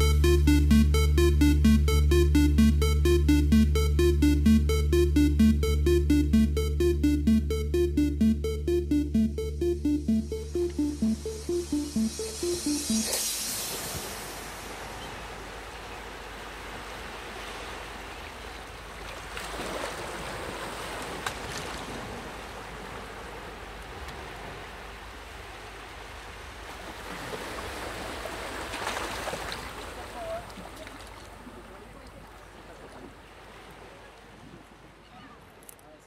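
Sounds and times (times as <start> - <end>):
small waves washing: 13.4 - 34.9.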